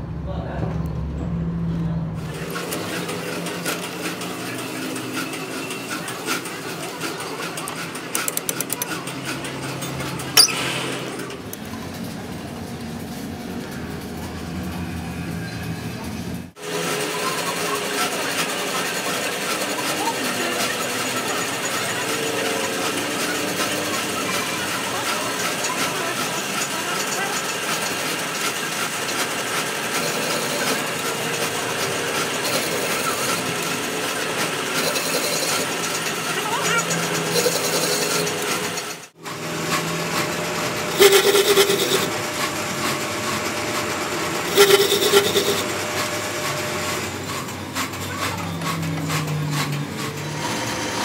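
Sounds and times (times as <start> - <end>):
metal lathe machining: 2.2 - 51.0
metal tool clanking on lathe: 4.9 - 11.8, 25.3 - 39.0, 40.9 - 42.1, 44.4 - 45.7.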